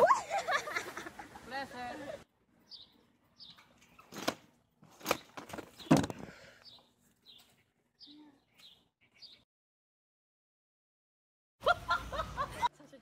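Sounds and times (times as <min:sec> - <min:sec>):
bird chirping: 0:02.5 - 0:09.5.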